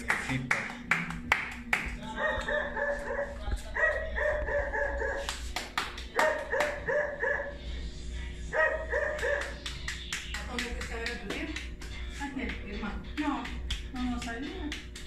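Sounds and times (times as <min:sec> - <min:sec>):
dog barking: 0:02.2 - 0:05.3, 0:06.2 - 0:07.6, 0:08.5 - 0:09.6
hands patting dough: 0:09.2 - 0:15.0.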